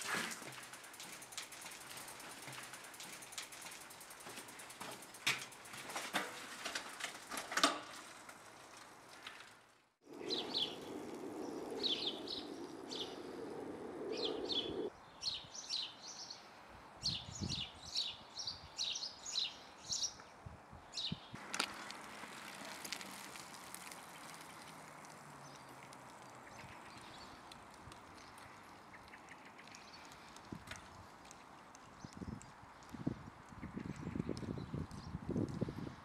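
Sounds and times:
bicycle wheeled along clicking: 0.0s - 14.9s, 21.4s - 36.0s
freewheel ticking: 0.2s - 7.4s
steady rushing noise: 10.0s - 14.9s
small birds chirping: 10.0s - 16.5s, 23.8s - 30.5s.

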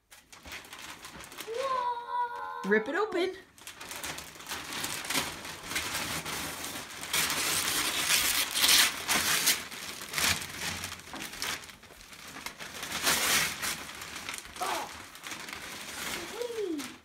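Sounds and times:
wrapping paper ripping and crumpling: 0.0s - 17.0s.

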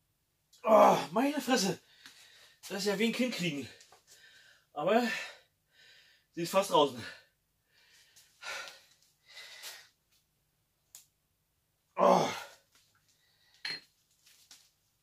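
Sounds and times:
man groaning: 0.6s - 1.2s, 12.0s - 12.5s.

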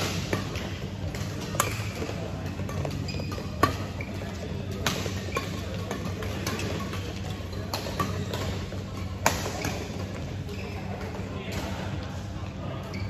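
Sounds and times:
rackets striking shuttlecock: 0.0s - 10.2s
low hum of hall: 0.0s - 13.0s.

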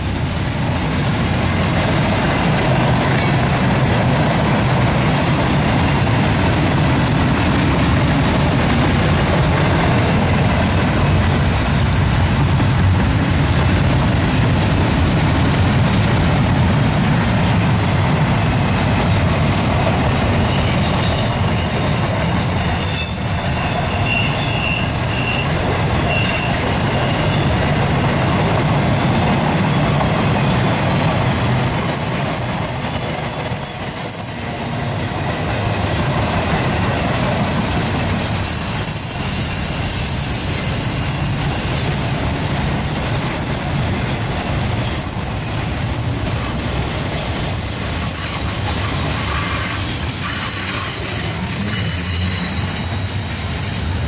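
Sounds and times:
high wheel squeal: 0.0s - 4.0s, 19.5s - 28.1s, 28.9s - 54.0s
steel wheels rumbling on rail: 0.0s - 54.0s.

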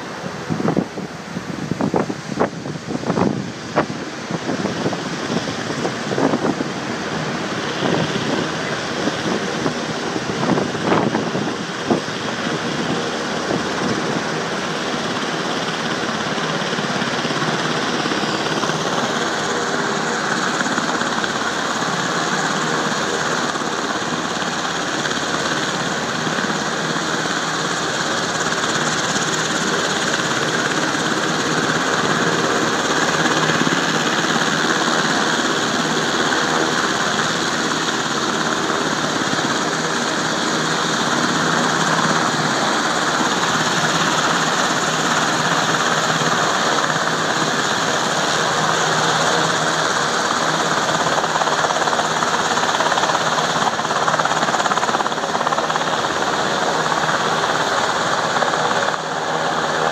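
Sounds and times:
helicopter engine and rotor: 0.0s - 59.9s
wind buffeting microphone: 0.2s - 27.0s.

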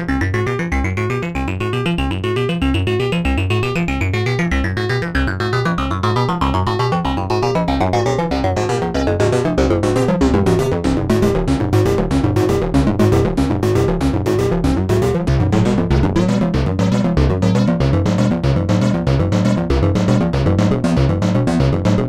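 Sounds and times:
synthesizer pulsing sequence: 4.8s - 22.0s.

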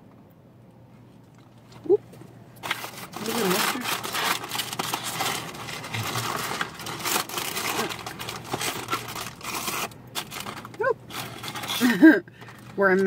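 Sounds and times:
paper bags rustling: 2.6s - 13.0s.

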